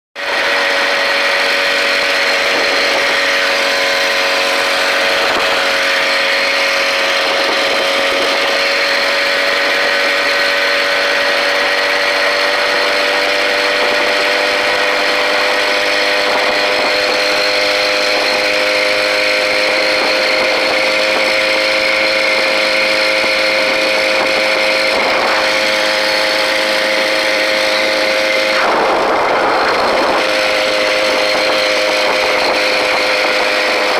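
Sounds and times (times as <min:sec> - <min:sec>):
small engine buzzing: 0:00.2 - 0:33.9.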